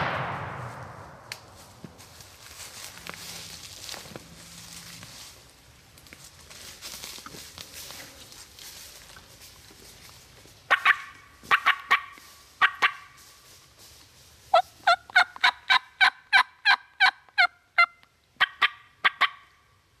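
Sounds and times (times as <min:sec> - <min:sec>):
turkey clucking: 0:10.7 - 0:13.1, 0:14.5 - 0:19.6
turkey yelping: 0:10.7 - 0:13.1, 0:14.5 - 0:19.6.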